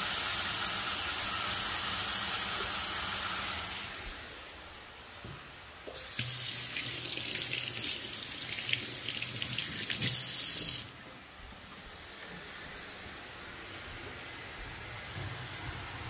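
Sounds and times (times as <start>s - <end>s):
water running from tap: 5.9s - 11.0s.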